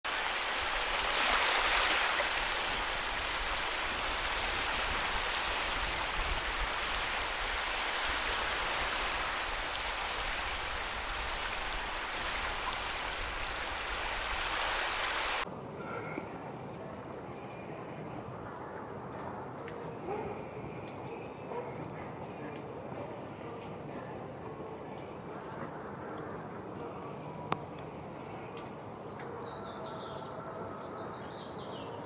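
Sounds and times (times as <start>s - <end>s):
seawater washing over sand: 0.1s - 15.4s.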